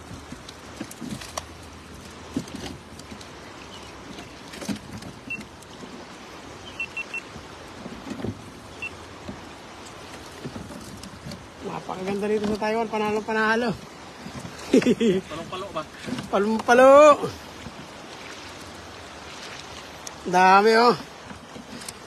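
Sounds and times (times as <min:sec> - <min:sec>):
fish flopping on wet rock: 0:00.0 - 0:06.2
stream water running: 0:00.0 - 0:22.0
short high chirps: 0:06.6 - 0:07.2.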